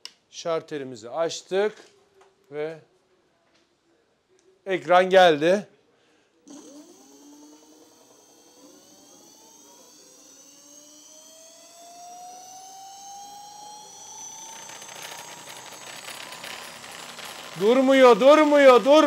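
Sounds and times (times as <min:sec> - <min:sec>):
electric motor whine rising: 0:06.5 - 0:19.0
rough motor buzz: 0:06.5 - 0:19.0.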